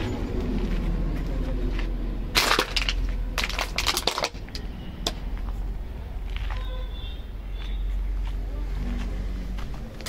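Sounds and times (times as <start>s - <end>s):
steady low rumble: 0.0s - 10.0s
crunching and crackling: 1.7s - 4.7s.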